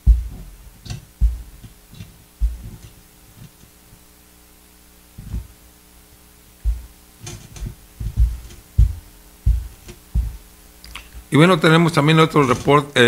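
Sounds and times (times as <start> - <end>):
dull thumps and taps on tablet: 0.0 - 1.8, 2.4 - 3.0, 5.2 - 5.5, 6.6 - 10.5
faint electrical hum: 0.0 - 13.0.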